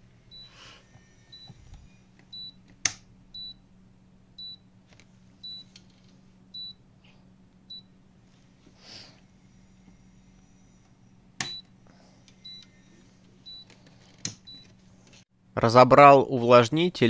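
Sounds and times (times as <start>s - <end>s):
humidifier beeping: 0.0s - 5.8s, 6.4s - 7.0s, 7.6s - 8.0s, 11.0s - 14.9s.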